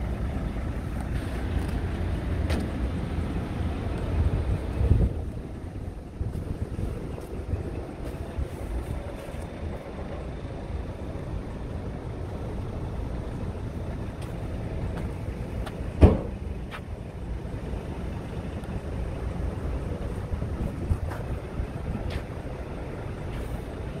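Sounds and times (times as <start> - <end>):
wind buffeting microphone: 3.4 - 10.8, 17.3 - 24.0.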